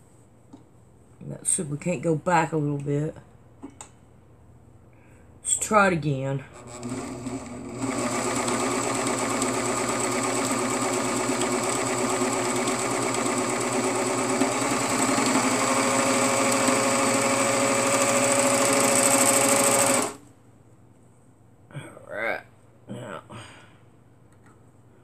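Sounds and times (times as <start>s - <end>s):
overlock sewing machine running: 6.6s - 20.2s.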